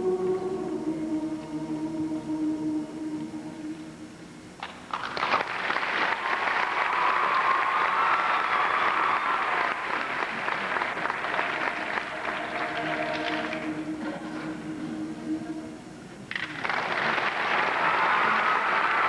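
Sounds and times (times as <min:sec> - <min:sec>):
audience applause: 0:04.6 - 0:13.7, 0:16.3 - 0:19.0.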